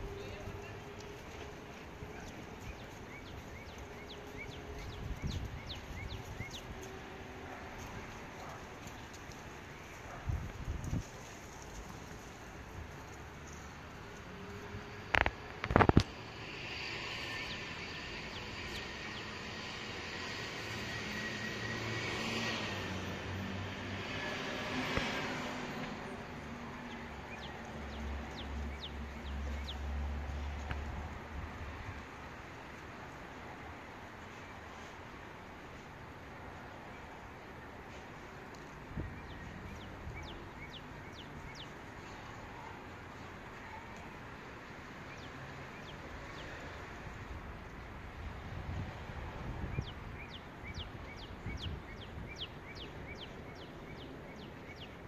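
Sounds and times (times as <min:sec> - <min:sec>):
bird chirping: 0:02.1 - 0:06.8, 0:16.8 - 0:19.7, 0:26.8 - 0:29.9, 0:39.0 - 0:42.2, 0:49.7 - 0:55.0
jet engine noise: 0:14.4 - 0:26.4.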